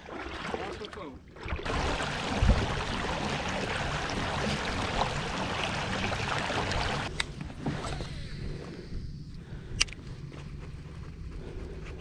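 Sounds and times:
water lapping: 0.0s - 7.1s
water and wind rushing: 0.0s - 7.7s.

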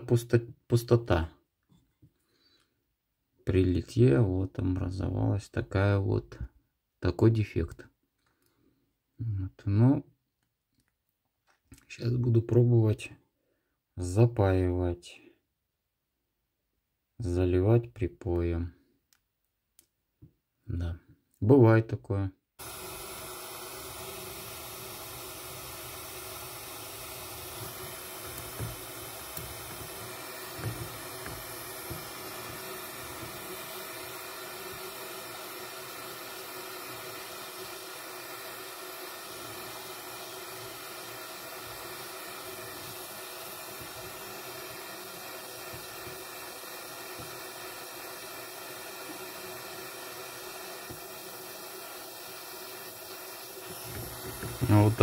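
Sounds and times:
soldering torch hissing: 22.6s - 55.0s.

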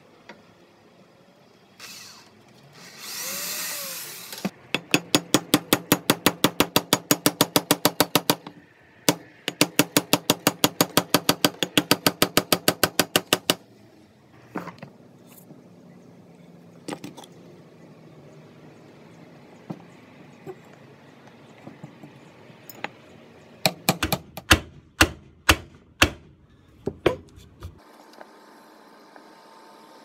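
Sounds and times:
power drill boring wood: 1.8s - 4.5s
hammer driving nail into wood: 23.6s - 26.3s.

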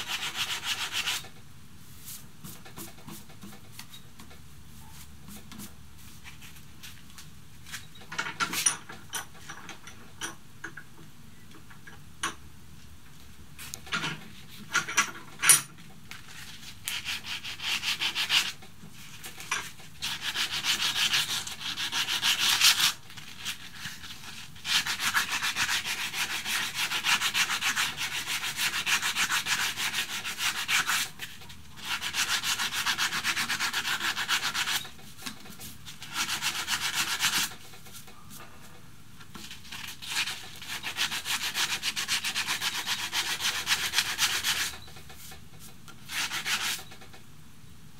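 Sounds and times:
sandpaper rubbing on wood: 0.0s - 1.2s, 16.9s - 18.6s, 20.0s - 34.8s, 36.0s - 37.6s, 39.7s - 44.7s, 46.1s - 46.8s.

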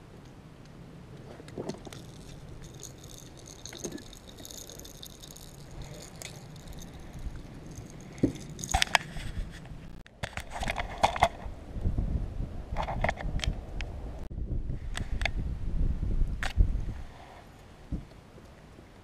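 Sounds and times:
light clicks and rattles: 1.5s - 11.3s.

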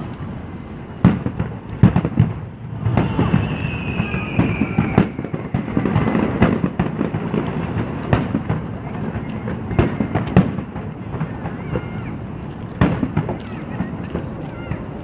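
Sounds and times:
fireworks booming and crackling: 0.0s - 15.0s
falling firework whistle: 1.8s - 7.7s.

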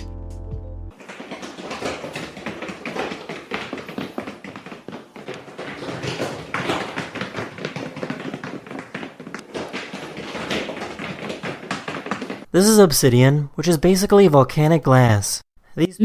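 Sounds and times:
booted paws tapping on hard floor: 0.9s - 12.5s.

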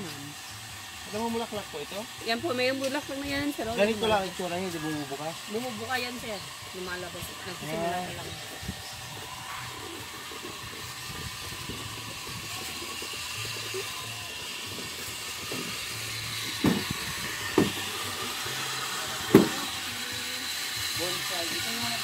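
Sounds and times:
steady outdoor hiss: 0.0s - 22.0s
dull thumps: 16.6s - 17.8s, 19.3s - 19.6s.

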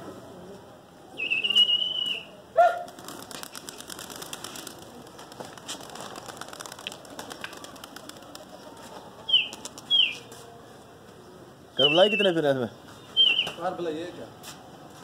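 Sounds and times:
pigeon wings flapping and clapping: 2.8s - 10.0s.

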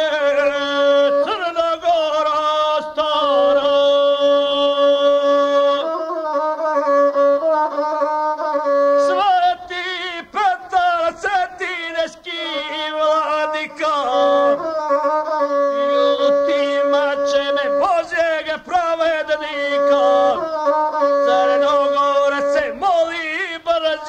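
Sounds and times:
bowed single-string fiddle melody: 0.0s - 24.0s
person chanting verse: 9.1s - 24.0s.

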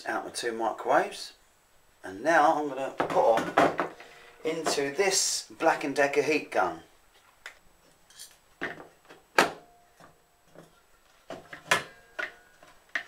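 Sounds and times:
knocks and clicks of handled parts: 8.2s - 13.0s.

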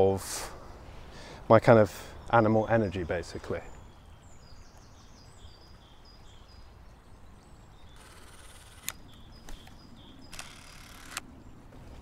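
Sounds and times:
bird chirps: 2.0s - 11.2s
sharp click: 8.7s - 11.2s.

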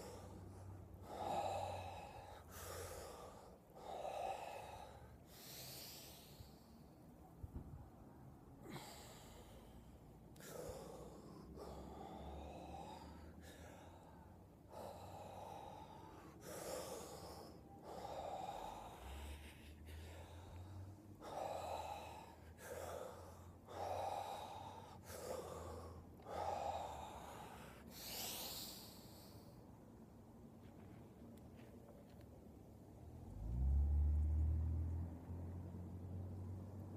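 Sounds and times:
man breathing forcefully: 0.0s - 7.2s, 8.5s - 29.7s.

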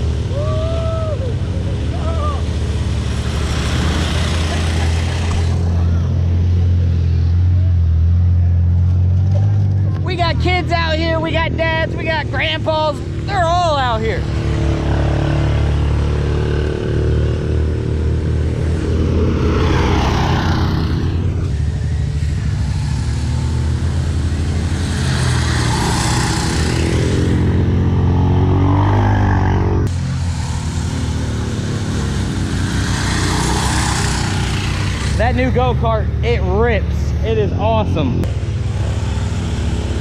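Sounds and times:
four-wheeler engine driving past: 0.0s - 40.0s
go-kart engine driving past: 1.0s - 10.0s, 14.2s - 36.2s.

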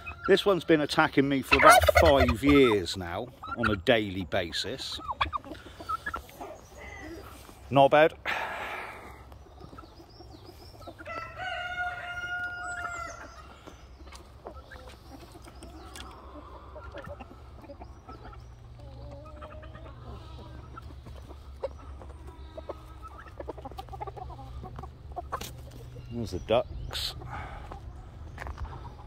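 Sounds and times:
hens clucking: 0.0s - 29.0s
rooster crowing: 11.0s - 13.2s.

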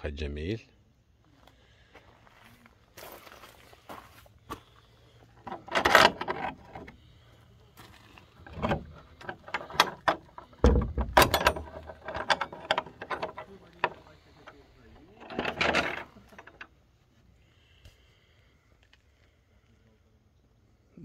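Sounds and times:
wooden door latch clunks and scrapes: 5.4s - 7.0s, 8.4s - 14.1s, 15.2s - 16.6s.

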